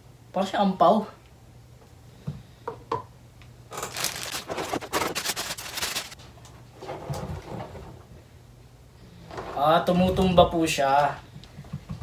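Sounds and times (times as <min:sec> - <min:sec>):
plastic bag crinkling: 0:03.7 - 0:06.2.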